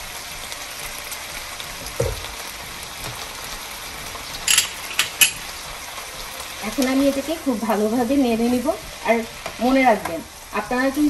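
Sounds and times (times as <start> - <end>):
vegetables sizzling in a frying pan: 0.0 - 11.0
dull knock: 1.9 - 2.4.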